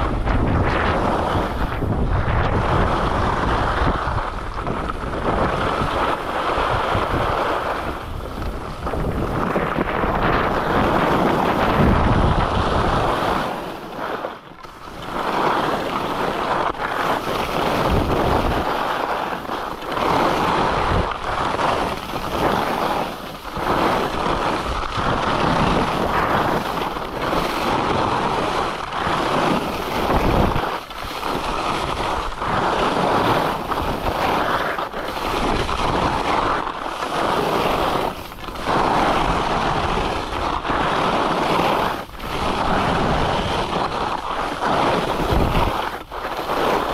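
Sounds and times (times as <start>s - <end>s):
skis scraping over snow: 0.0s - 46.9s
wind buffeting microphone: 0.0s - 46.9s.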